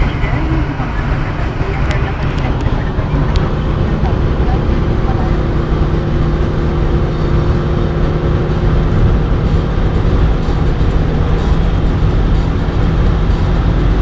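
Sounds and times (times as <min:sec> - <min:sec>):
car engine drone: 0:00.0 - 0:14.0
road and wind noise: 0:00.0 - 0:14.0.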